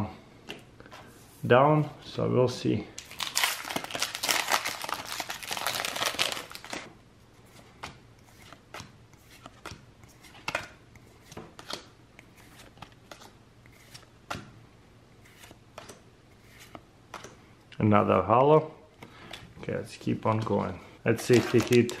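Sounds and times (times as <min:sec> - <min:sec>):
foil pack crinkling: 0:03.0 - 0:06.8, 0:21.1 - 0:22.0.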